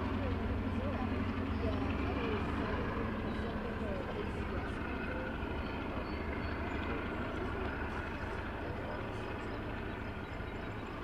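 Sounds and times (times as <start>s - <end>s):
distant freight train rumble: 0.0s - 11.0s.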